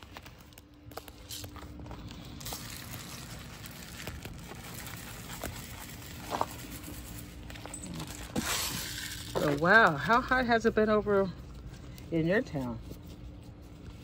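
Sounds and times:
granules pattering onto leaves: 0.0s - 10.4s.

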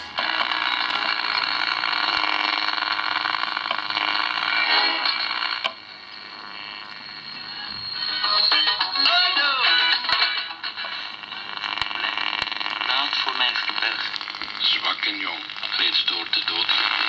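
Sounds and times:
am radio broadcast with noise: 0.0s - 17.0s
faint radio hiss: 0.0s - 17.0s
radio dial click: 10.7s - 17.0s.

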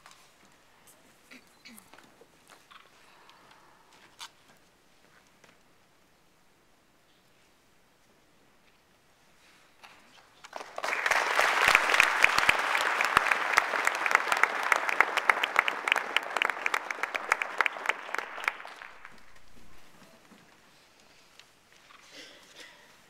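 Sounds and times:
audience applauding: 10.4s - 20.0s.

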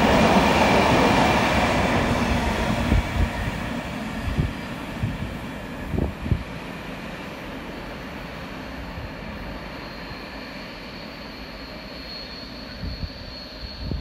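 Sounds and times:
thin high whine: 8.0s - 14.0s.

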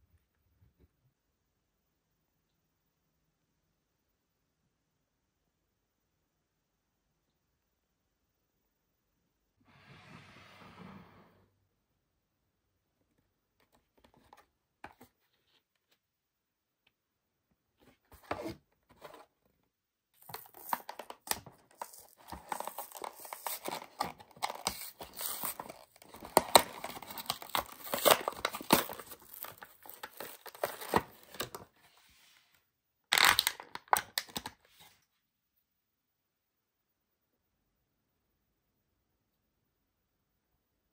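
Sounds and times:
card backing tearing: 20.2s - 31.6s
plastic crinkling: 20.2s - 31.7s.

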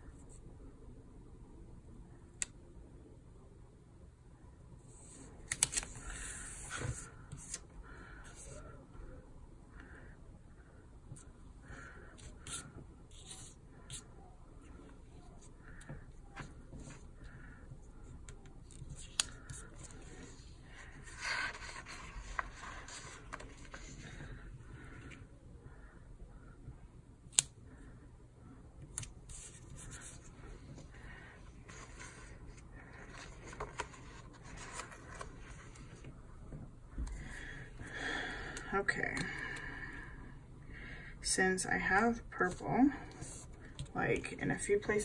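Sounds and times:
paper rustling and crinkling: 18.6s - 24.2s, 31.7s - 36.1s.

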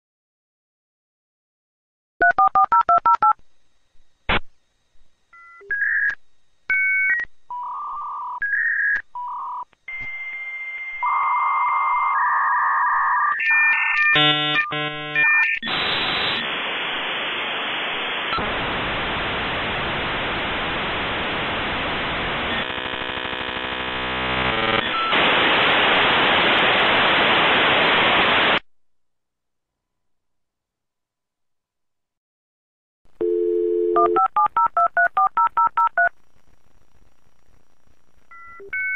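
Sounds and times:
modem beeps and tones: 5.4s - 16.4s, 24.4s - 25.2s.

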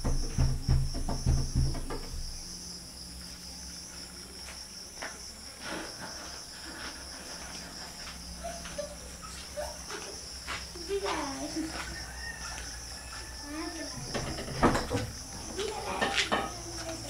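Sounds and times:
low heavy thumps: 0.0s - 2.5s
crickets chirring: 0.0s - 17.0s.

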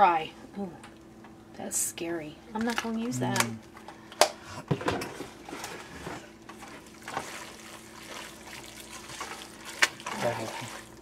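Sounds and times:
faint steady hum: 0.0s - 11.0s
wet squelching of stirred pasta: 6.6s - 11.0s.

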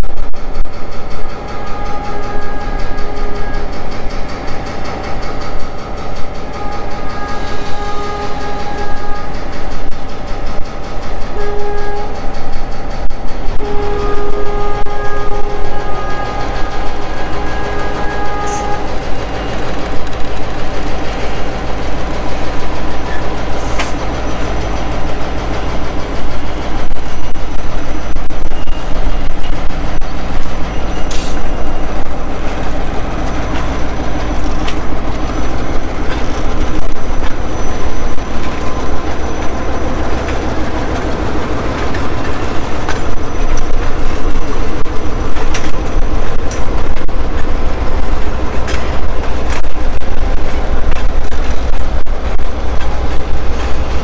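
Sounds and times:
locomotive engine rumble: 0.0s - 54.0s
train cars rumbling on rails: 0.0s - 54.0s
locomotive air horn blasts: 1.6s - 3.7s, 6.6s - 9.4s, 11.4s - 12.2s, 13.6s - 18.9s.

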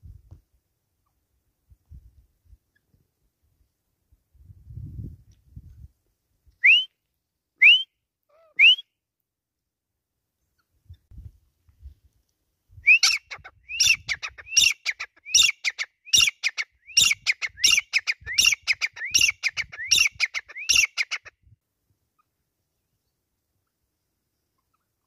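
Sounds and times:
bird calling ringing phrases: 12.9s - 21.3s.

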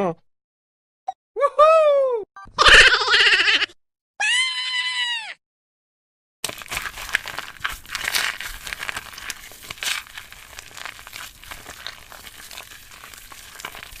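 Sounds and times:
play dough squeezed in plastic cup: 6.4s - 14.0s.

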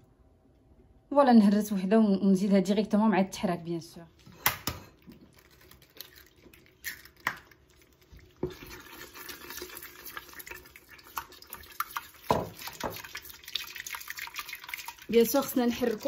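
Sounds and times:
wooden spoon stirring thick filling: 7.6s - 16.0s.

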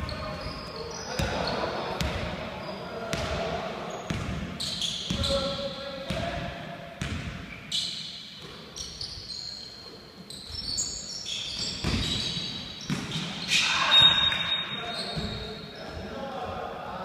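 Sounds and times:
shoes squeaking on floor: 0.0s - 3.0s, 3.9s - 5.7s, 7.4s - 16.2s
basketball bouncing on hardwood floor: 7.0s - 7.4s.

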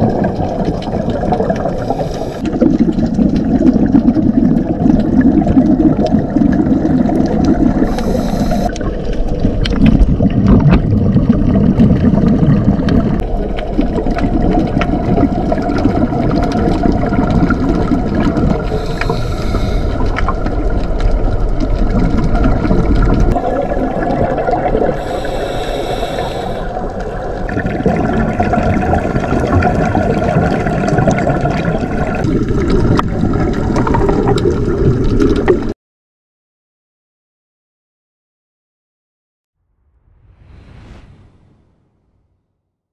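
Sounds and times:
underwater rumble and gurgling: 0.0s - 35.7s
regulator hissing bursts: 7.9s - 8.7s, 25.0s - 26.7s.

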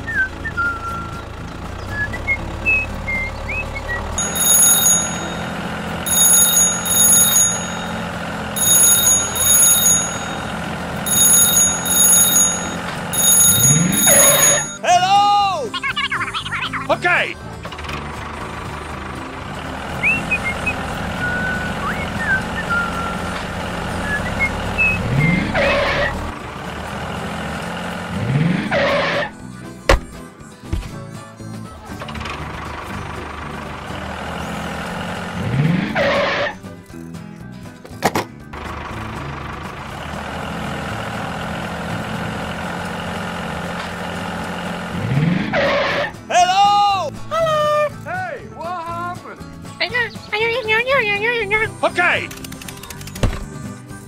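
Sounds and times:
tractor engine running: 0.0s - 46.4s, 49.4s - 54.0s
loud engine burst: 17.7s - 29.4s, 32.2s - 36.6s, 38.6s - 46.2s.

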